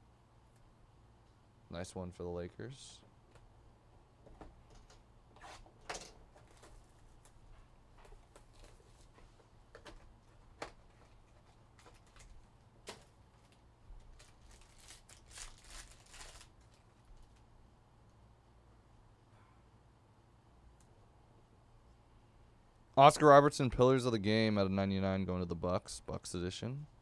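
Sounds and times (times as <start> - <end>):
trading cards clicking and rustling: 8.0 - 17.4
foil pack tearing open: 12.9 - 17.4.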